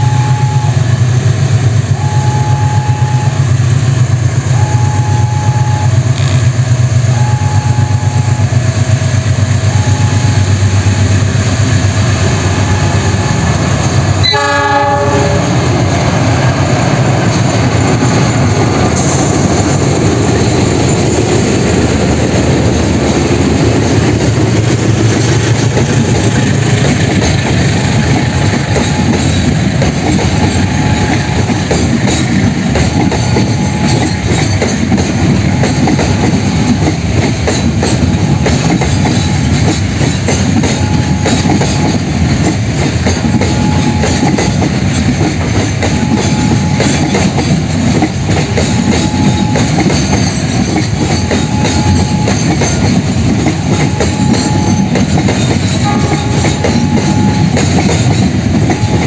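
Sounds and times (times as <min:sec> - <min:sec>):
faint two-note signal: 0:00.0 - 0:00.8, 0:02.0 - 0:03.4, 0:04.5 - 0:06.0, 0:07.1 - 0:08.5, 0:09.7 - 0:11.2
train horn blast: 0:00.0 - 0:00.9, 0:01.9 - 0:03.5, 0:07.0 - 0:08.7, 0:12.2 - 0:16.4, 0:30.3 - 0:31.7, 0:40.6 - 0:42.1, 0:43.2 - 0:44.2, 0:45.9 - 0:47.0, 0:53.5 - 0:54.9, 0:55.8 - 0:57.6
diesel locomotive engine rumbling: 0:00.0 - 0:59.0
wagons clattering over rail joints: 0:16.6 - 0:59.0.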